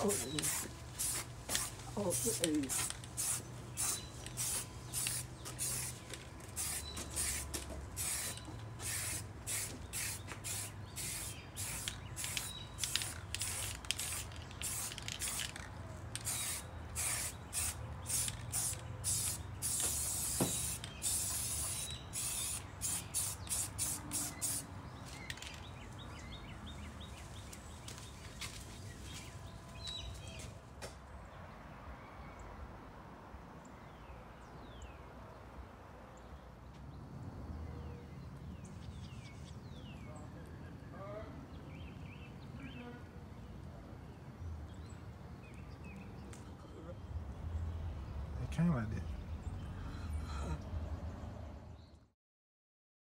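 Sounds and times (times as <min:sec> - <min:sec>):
spray paint can hissing: 0:00.0 - 0:25.6.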